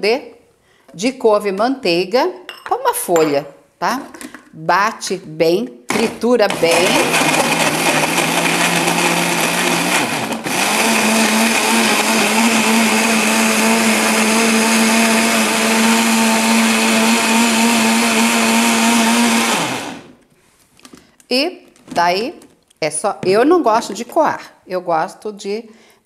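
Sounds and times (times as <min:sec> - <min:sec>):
blender running: 0:05.9 - 0:20.2.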